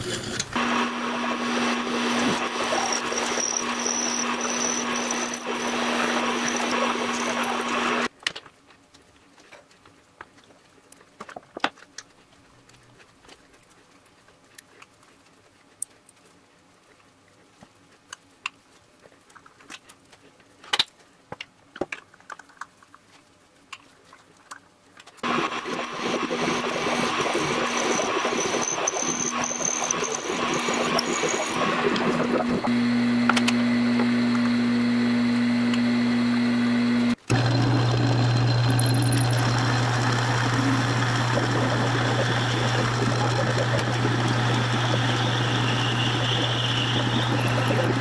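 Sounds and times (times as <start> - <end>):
drill cutting into metal: 0.6 - 8.1, 25.2 - 34.6, 35.6 - 48.0.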